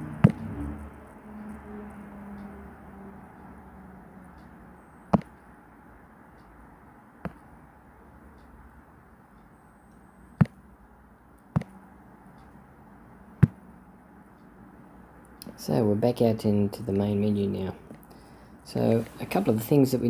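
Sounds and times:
faint steady hum: 0.0 - 20.0
fingertip taps on touchscreen: 5.1 - 5.4, 10.4 - 10.6, 11.5 - 11.7, 13.4 - 13.6.

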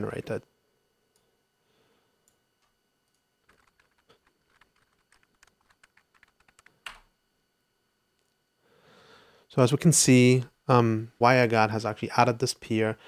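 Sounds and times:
typing on keyboard: 3.1 - 7.1.

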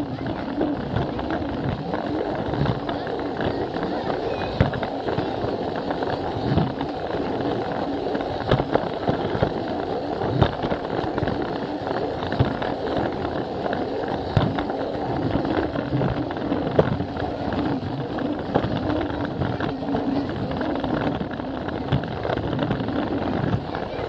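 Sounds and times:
toy train rattling on track: 0.0 - 24.0.

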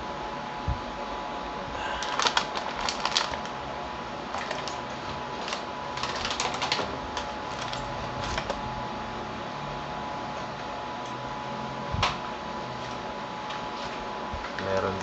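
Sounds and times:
plastic bag crinkling: 1.9 - 3.6, 4.3 - 8.6.

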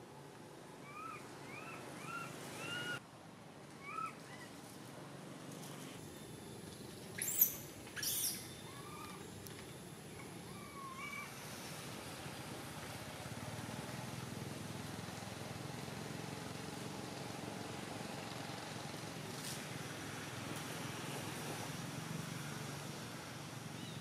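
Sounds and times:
baby macaque crying: 3.8 - 4.5, 10.5 - 11.3.

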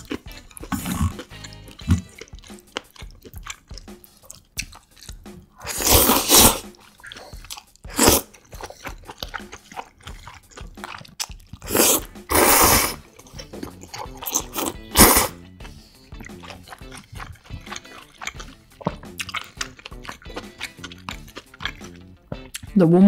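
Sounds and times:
soft chewing clicks: 0.0 - 5.5, 6.7 - 11.7, 15.5 - 22.8
loud noodle slurps: 5.6 - 9.4, 11.6 - 13.2, 13.8 - 19.4.

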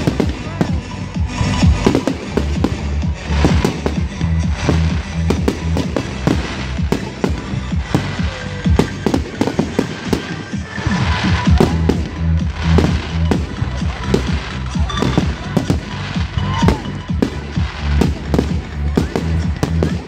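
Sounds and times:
fireworks bangs and crackles: 0.0 - 20.0
music with repeating bass: 0.0 - 20.0.

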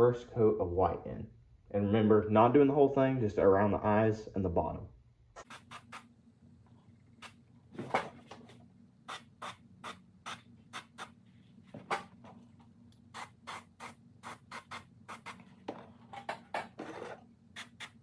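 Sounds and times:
airbrush spraying bursts: 5.4 - 6.1, 9.1 - 11.2.

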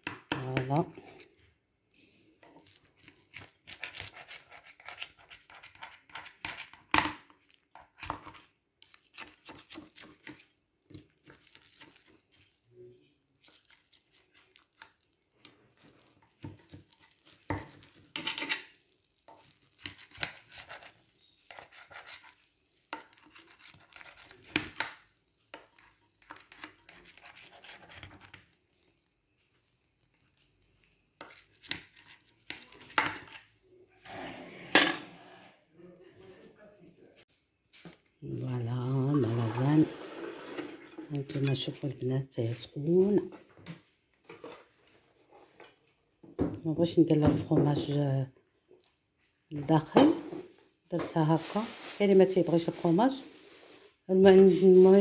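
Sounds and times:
knife scraping ceramic dish: 2.6 - 6.8, 16.5 - 18.8, 19.4 - 24.6, 39.0 - 41.7.

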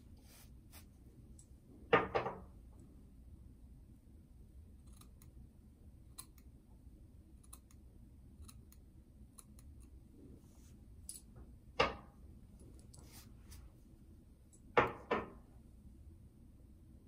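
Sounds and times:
scissors snipping hair: 4.8 - 5.3, 6.1 - 6.5, 7.4 - 7.8, 9.4 - 10.0.

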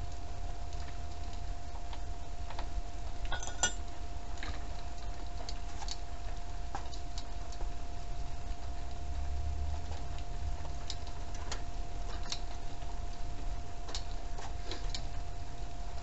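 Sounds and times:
faint hum: 0.0 - 16.0
wrench clinking on metal: 3.3 - 3.8.

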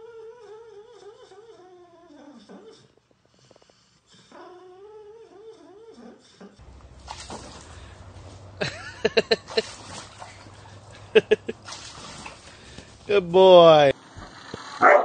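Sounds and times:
dog whining: 0.0 - 3.0, 4.2 - 6.6.

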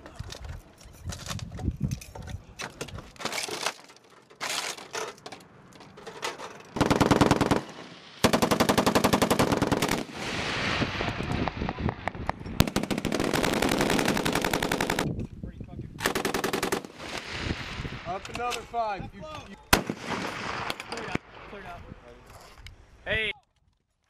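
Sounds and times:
machine gun bursts: 6.8 - 10.0, 12.6 - 15.0.

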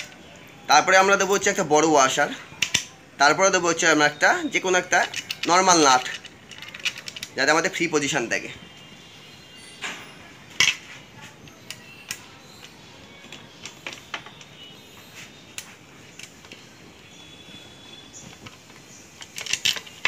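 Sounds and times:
metal washers and bolt clinking: 2.0 - 3.4, 4.0 - 7.9, 9.6 - 14.7, 18.1 - 20.0.

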